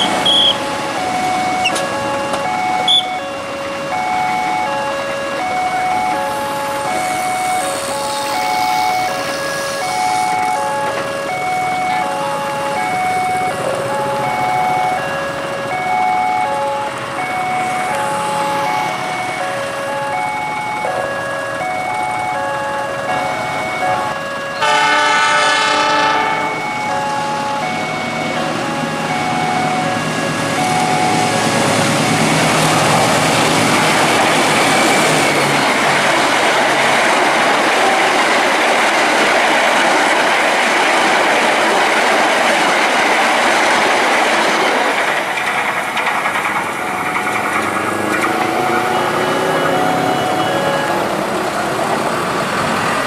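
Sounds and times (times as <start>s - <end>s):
level crossing warning bell: 0.0s - 53.0s
train wheels clattering over rails: 0.0s - 53.0s
train horn: 23.9s - 26.7s.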